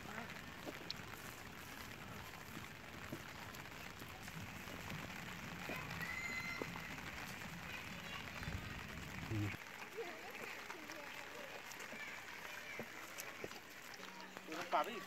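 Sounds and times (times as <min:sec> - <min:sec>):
squishing of bait being kneaded: 0:00.0 - 0:08.6.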